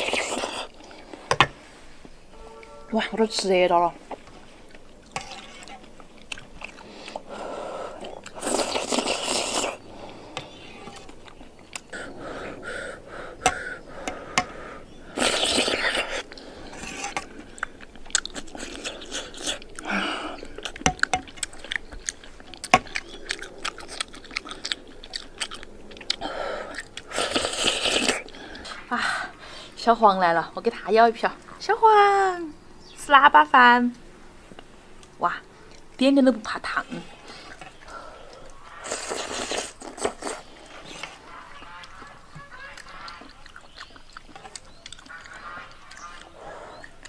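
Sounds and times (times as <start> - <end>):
chewing and mouth sounds: 0.0 - 1.2, 4.1 - 12.6, 13.3 - 29.0, 34.5 - 47.0
slurping: 0.0 - 1.8, 4.1 - 12.6, 13.3 - 28.9, 36.9 - 47.0.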